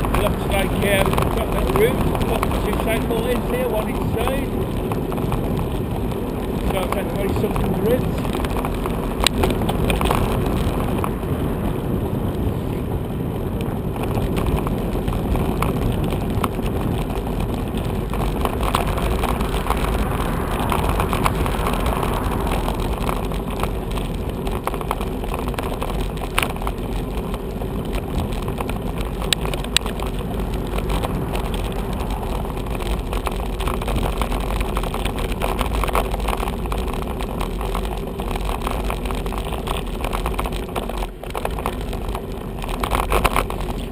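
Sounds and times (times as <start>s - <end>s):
bicycle road rumble: 0.0s - 43.9s.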